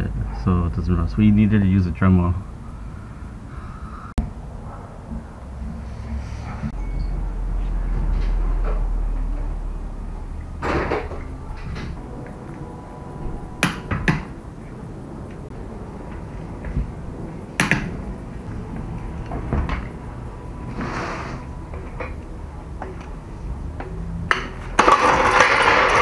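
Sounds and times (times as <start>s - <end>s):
metal scrape: 4.6s - 9.6s, 19.0s - 22.2s, 24.3s - 26.0s.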